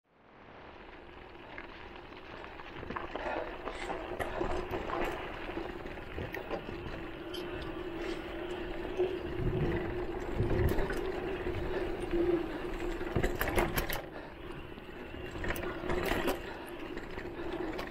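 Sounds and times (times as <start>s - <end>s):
tyres on gravel trail: 0.1s - 17.9s
bike rattling over bumps: 0.4s - 17.9s
low rumbles: 1.1s - 13.6s
electric bike motor whining: 2.3s - 17.9s.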